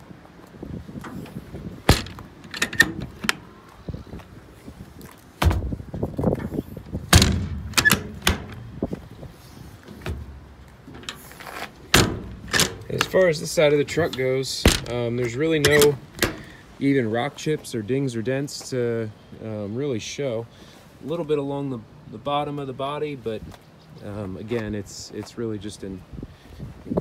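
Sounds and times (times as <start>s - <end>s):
compartment door latches clicking: 1.9s - 3.4s, 7.1s - 8.8s, 11.9s - 13.2s, 14.1s - 15.0s, 15.6s - 16.5s.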